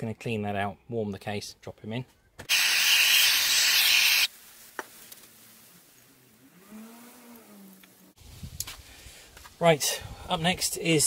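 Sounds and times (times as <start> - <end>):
hissing spray blast: 2.5 - 4.3.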